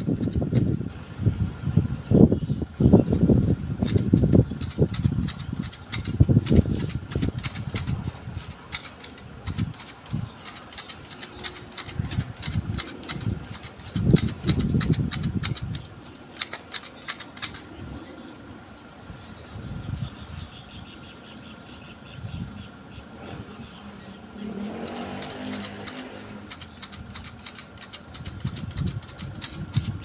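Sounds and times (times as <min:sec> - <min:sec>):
hedge shears snipping: 0:03.8 - 0:17.8, 0:24.5 - 0:30.0.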